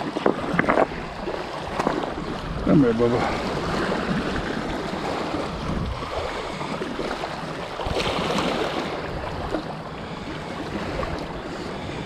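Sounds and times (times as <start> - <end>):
wind on microphone: 0.0 - 9.8
surf lapping on rocks: 0.0 - 12.0.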